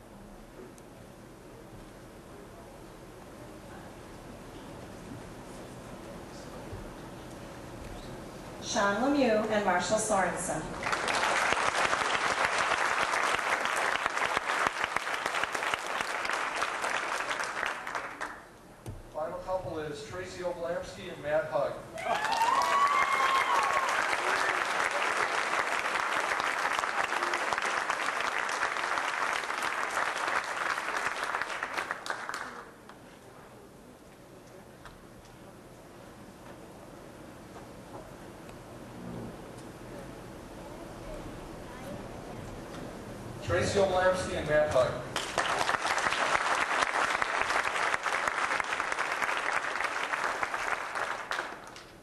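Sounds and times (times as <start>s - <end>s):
crowd applauding: 10.7s - 18.5s, 22.0s - 33.0s, 45.1s - 52.0s.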